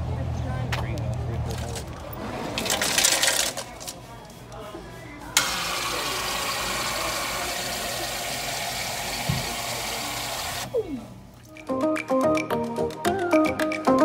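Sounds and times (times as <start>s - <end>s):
soda fountain hissing into cup: 5.4s - 10.7s
music: 11.5s - 14.0s.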